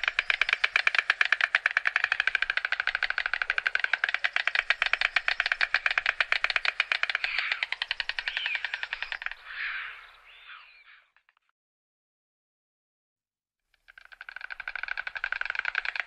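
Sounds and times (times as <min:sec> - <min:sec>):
stork bill-clattering: 0:00.0 - 0:09.4, 0:13.9 - 0:16.0.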